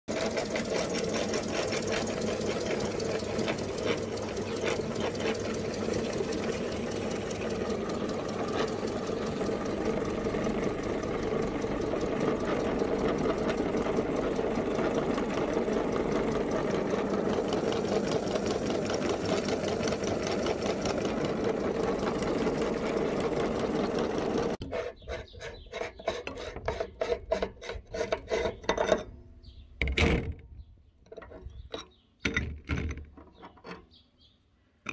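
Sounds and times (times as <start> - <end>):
meat grinder whirring: 0.1 - 25.1.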